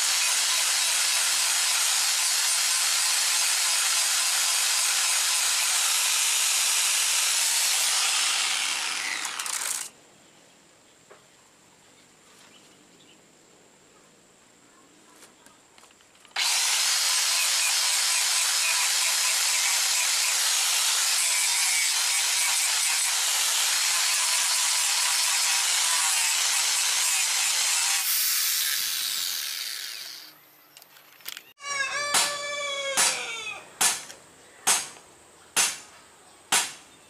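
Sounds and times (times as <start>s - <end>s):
angle grinder grinding metal blade: 0.0s - 9.9s, 16.4s - 30.4s.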